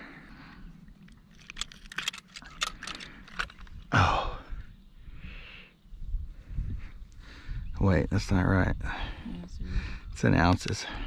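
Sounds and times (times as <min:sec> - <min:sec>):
small clicks and rattles: 0:01.0 - 0:03.8.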